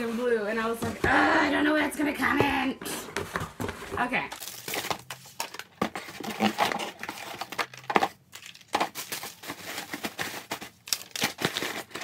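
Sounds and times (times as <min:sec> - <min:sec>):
cardboard box rustling and crinkling: 0:02.4 - 0:12.0.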